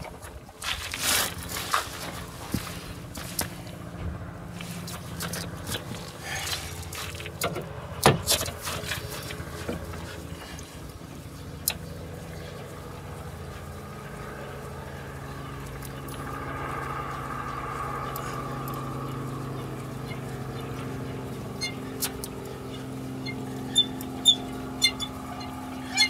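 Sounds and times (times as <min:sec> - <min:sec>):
vehicle engine hum: 0:00.0 - 0:26.0.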